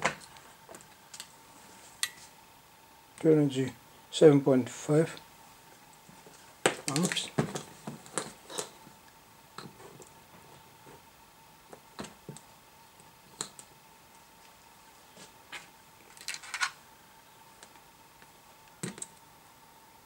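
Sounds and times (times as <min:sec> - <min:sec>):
wires and clips clicking: 0:06.7 - 0:07.4.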